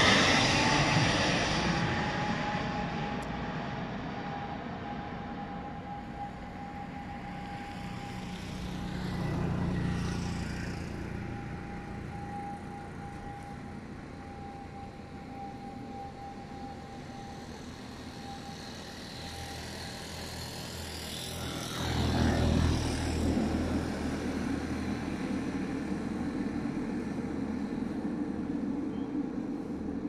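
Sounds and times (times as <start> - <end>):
airplane engines passing: 0.0 - 30.0.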